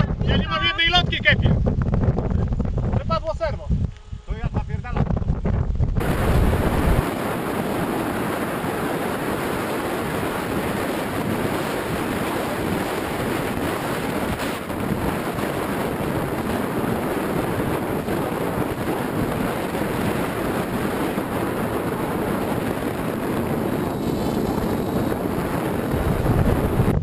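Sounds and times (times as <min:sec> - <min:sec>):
wind rushing over microphone: 0:00.0 - 0:27.0.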